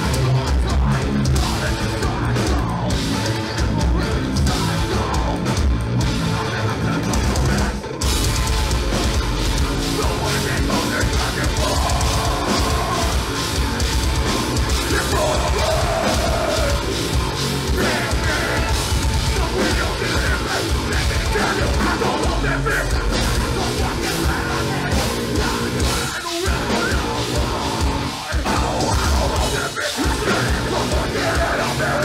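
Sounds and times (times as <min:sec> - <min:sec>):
distorted guitars: 0:00.0 - 0:32.0
pounding drums: 0:00.0 - 0:32.0.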